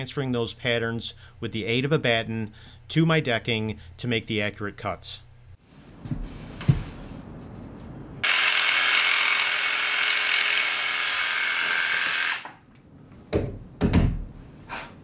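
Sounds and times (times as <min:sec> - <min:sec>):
cordless drill whirring: 0:08.2 - 0:12.6.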